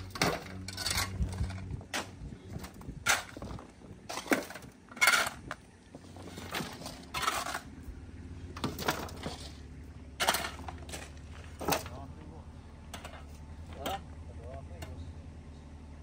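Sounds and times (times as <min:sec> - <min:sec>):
shovels scraping rocky soil: 0:00.0 - 0:07.7, 0:08.6 - 0:12.0
rocks clattering into wheelbarrows: 0:00.0 - 0:07.8, 0:08.4 - 0:12.3, 0:12.9 - 0:15.0.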